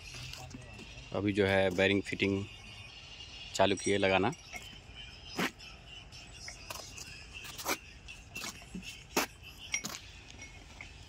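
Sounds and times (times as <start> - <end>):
metal bearing shells clicking: 9.6 - 11.0.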